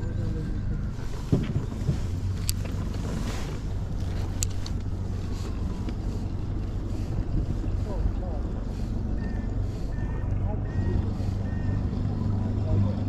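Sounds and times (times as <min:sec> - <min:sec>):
wind buffeting microphone: 0:00.0 - 0:12.6
steady low rumble: 0:00.0 - 0:13.0
water lapping on kayak: 0:00.6 - 0:12.7.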